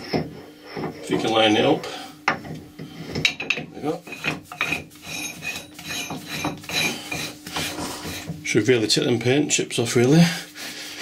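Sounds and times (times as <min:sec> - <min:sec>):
metal-on-metal scraping: 0:03.0 - 0:08.4.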